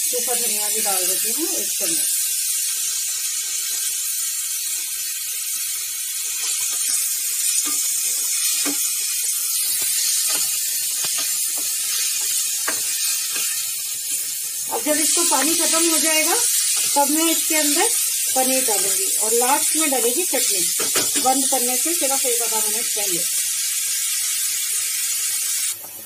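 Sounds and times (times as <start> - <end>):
vegetables sizzling in a frying pan: 0.0 - 26.0
spatula scraping and tapping pan: 6.4 - 14.3, 16.5 - 17.0.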